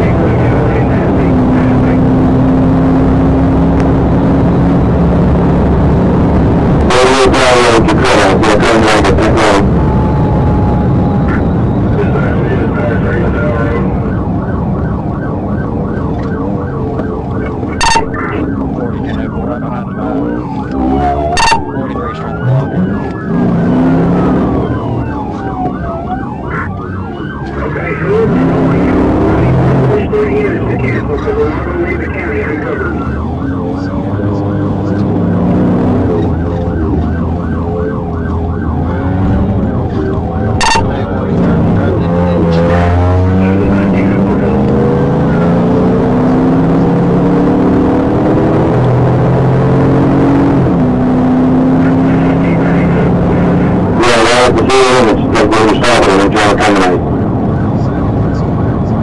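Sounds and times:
engine and road noise: 0.0 - 59.0
police siren yelping: 0.0 - 59.0
sharp siren blips: 0.0 - 59.0
second siren gliding tone: 8.8 - 59.0
short sharp beep: 17.8 - 18.3, 21.3 - 21.8, 40.6 - 41.0.

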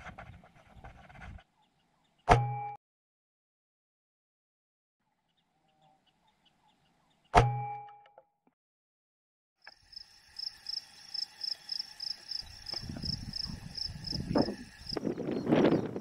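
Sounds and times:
insect chirping: 9.7 - 15.6
wind buffeting microphone: 12.4 - 16.0.

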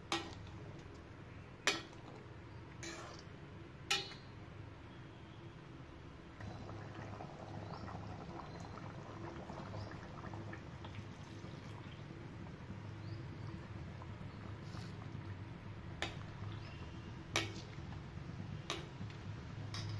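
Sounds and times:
coconut milk pouring into pot: 6.4 - 18.0.

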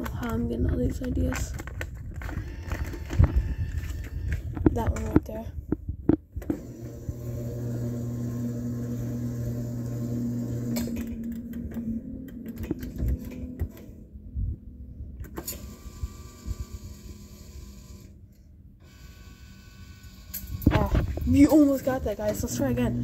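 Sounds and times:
claw machine motor humming: 6.4 - 13.8, 18.8 - 23.0.

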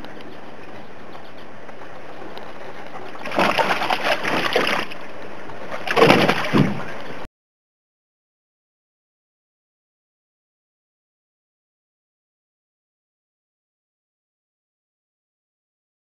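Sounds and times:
dog splashing in water: 3.2 - 5.0, 5.8 - 6.8.

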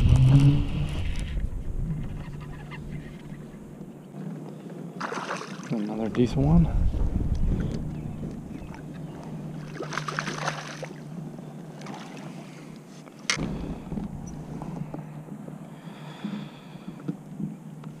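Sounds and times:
water splashing: 5.0 - 6.0, 7.6 - 11.1
steady low hum: 6.0 - 18.0.

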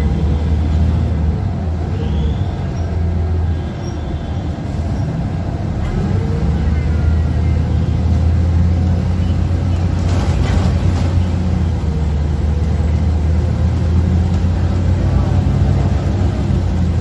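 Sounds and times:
bus engine drone: 0.0 - 17.0
road and body rattle: 0.0 - 17.0.

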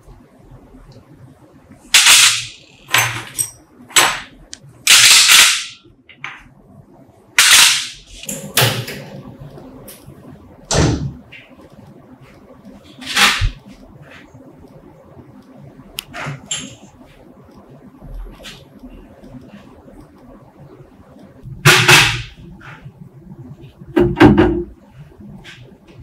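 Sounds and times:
metal parts clanking in tray: 2.0 - 4.3
knock: 24.0 - 24.7.

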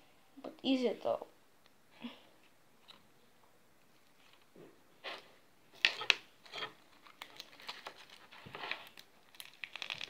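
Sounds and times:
hands crackling sticky slime: 7.0 - 10.0.

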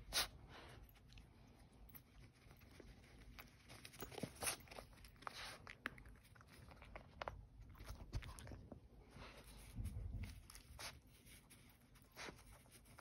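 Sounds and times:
puppy chewing treats: 0.8 - 8.9
puppy rustling in a snuffle mat: 1.9 - 5.7, 9.2 - 13.0.

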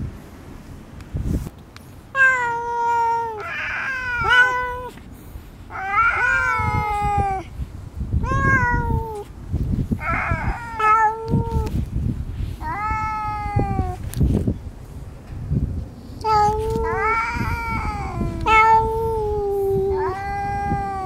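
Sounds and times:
cat yowling: 2.2 - 5.0, 5.7 - 7.5, 8.2 - 9.3, 10.0 - 11.7, 12.6 - 14.0, 16.3 - 21.0
cat hissing rasp: 2.8 - 7.5, 9.9 - 14.0, 16.8 - 21.0.

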